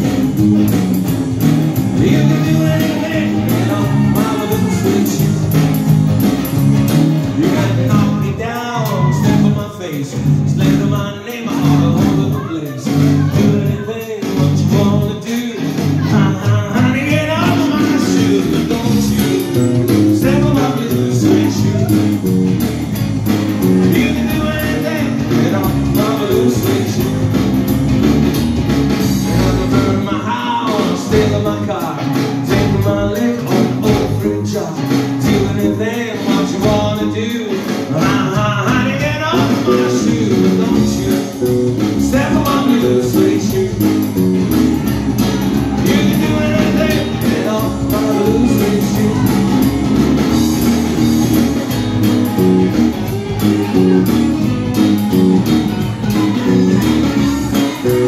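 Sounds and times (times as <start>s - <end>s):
drum kit: 0.0s - 58.0s
electric bass: 0.0s - 58.0s
rock and roll band playing: 0.0s - 58.0s.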